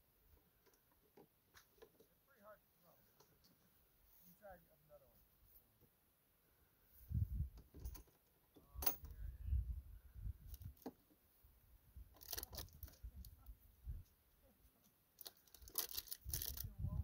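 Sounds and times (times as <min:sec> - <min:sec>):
wind buffeting microphone: 0:07.0 - 0:07.6, 0:09.1 - 0:10.7, 0:16.2 - 0:17.0
handling clicks and rustles: 0:07.5 - 0:09.1, 0:12.1 - 0:16.8.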